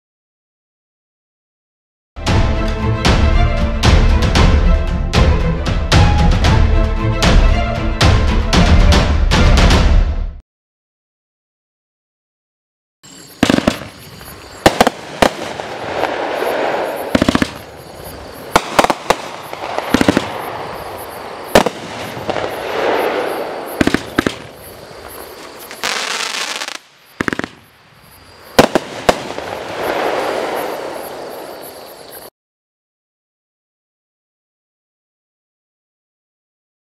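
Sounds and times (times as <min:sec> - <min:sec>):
firework bangs: 0:13.4 - 0:31.7
firework hissing crackling: 0:13.4 - 0:32.0.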